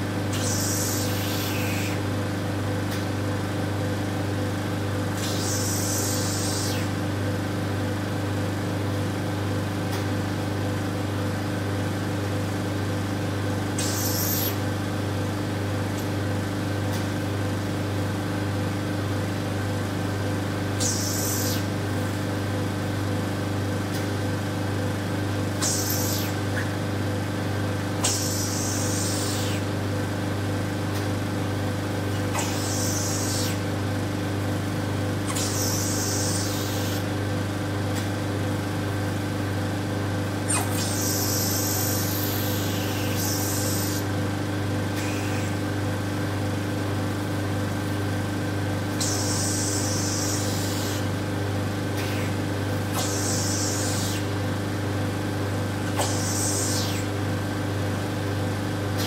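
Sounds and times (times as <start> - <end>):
vacuum pump hum: 0.0 - 59.0
short air hisses: 53.0 - 54.3, 56.0 - 57.1.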